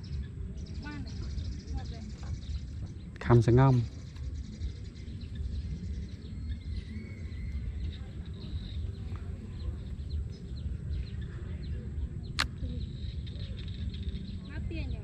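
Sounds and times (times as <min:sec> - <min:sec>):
faint bird chirps: 0:00.0 - 0:15.0
wind rumbling on microphone: 0:00.0 - 0:15.0.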